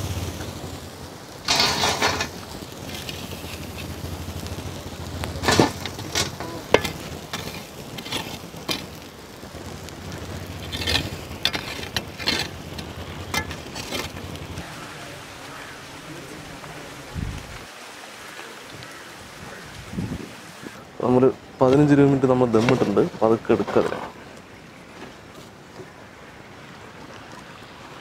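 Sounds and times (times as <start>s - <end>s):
coals clinking on metal lid: 1.4s - 3.9s, 5.3s - 9.0s, 10.6s - 14.6s
charcoal scraping and clattering: 1.4s - 4.5s, 5.2s - 9.1s, 10.4s - 14.6s, 21.8s - 24.2s.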